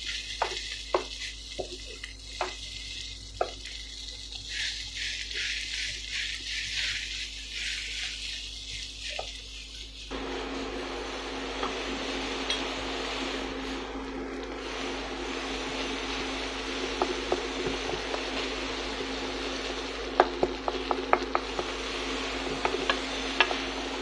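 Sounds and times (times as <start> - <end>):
wooden spatula scraping a pan: 0.0 - 11.0, 15.4 - 24.0
fried rice sizzling in a pan: 0.0 - 24.0
steady low hum: 9.7 - 24.0.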